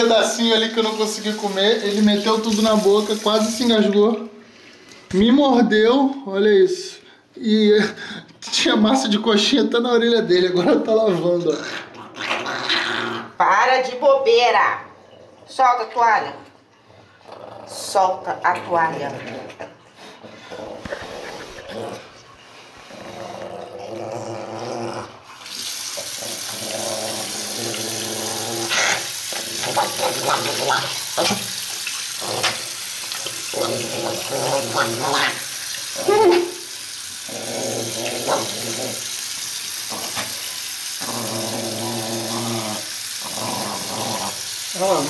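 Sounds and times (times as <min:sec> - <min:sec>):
tap water running into sink: 0:00.0 - 0:04.3, 0:25.4 - 0:45.0
small dog growling: 0:11.5 - 0:13.4, 0:16.9 - 0:18.1, 0:18.9 - 0:22.2, 0:22.8 - 0:25.4, 0:26.0 - 0:31.5, 0:32.2 - 0:32.8, 0:33.5 - 0:36.6, 0:37.2 - 0:39.2, 0:39.8 - 0:45.0.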